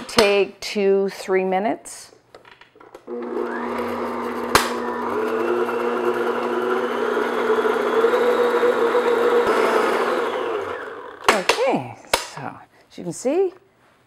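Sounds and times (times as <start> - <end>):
electric stand mixer running: 3.1 - 11.3.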